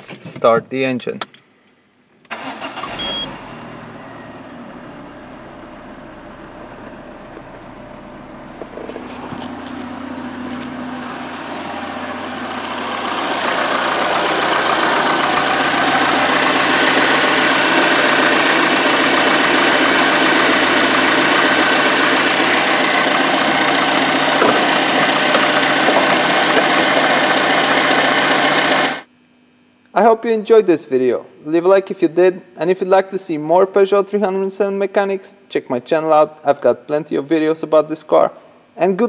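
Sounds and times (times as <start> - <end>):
car engine idling: 2.3 - 29.1.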